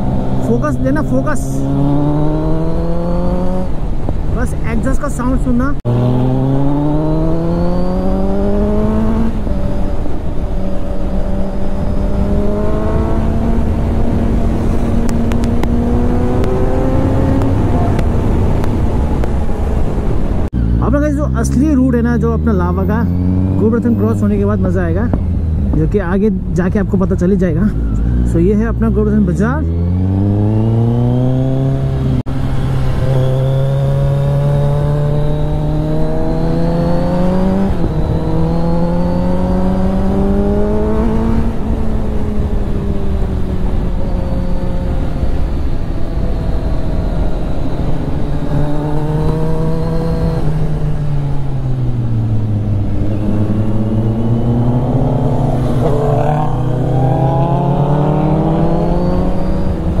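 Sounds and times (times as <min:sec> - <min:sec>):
motorcycle engine accelerating: 0:00.0 - 1:00.0
wind on microphone: 0:05.8 - 0:20.6.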